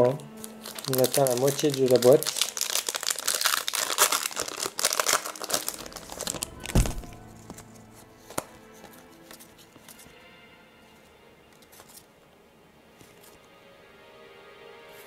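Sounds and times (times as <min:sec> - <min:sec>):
foil wrapper crinkling and tearing: 0:00.0 - 0:07.7
faint music: 0:00.0 - 0:15.0
thump: 0:06.7 - 0:07.2.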